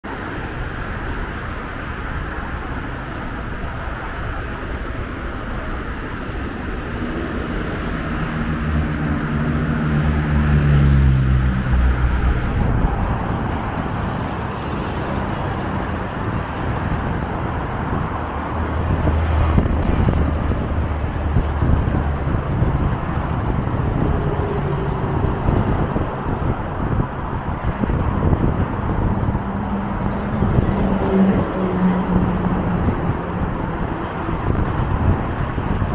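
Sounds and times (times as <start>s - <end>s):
heavy vehicle engine hum: 0.0s - 35.9s
road traffic passing: 0.0s - 35.9s
coach diesel drone passing: 28.1s - 35.7s.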